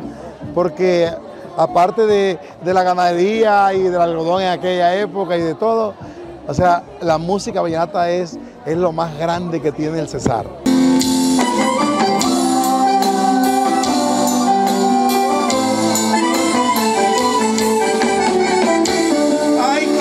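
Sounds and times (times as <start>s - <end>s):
percussion beat: 0.0s - 5.7s, 6.5s - 9.5s, 10.1s - 20.0s
accordion band music: 10.6s - 20.0s.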